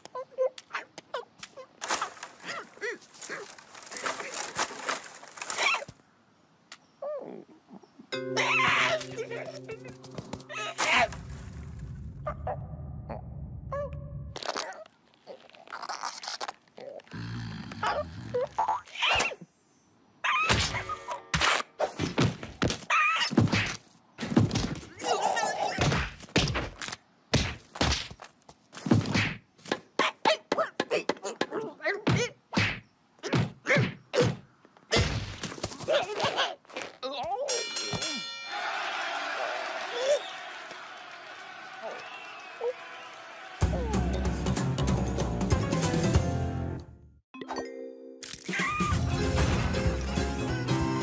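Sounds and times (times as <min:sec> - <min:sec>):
leaf rustling: 0:01.8 - 0:06.0, 0:09.0 - 0:12.1
cartoon cries: 0:08.3 - 0:09.9
squeaky cartoon grunts: 0:16.8 - 0:19.4, 0:25.0 - 0:25.8.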